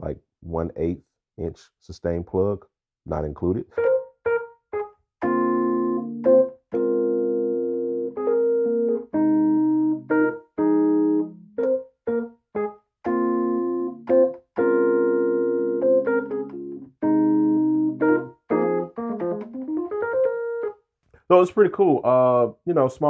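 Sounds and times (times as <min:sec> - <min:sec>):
keyboard instrument chords: 0:03.7 - 0:20.8.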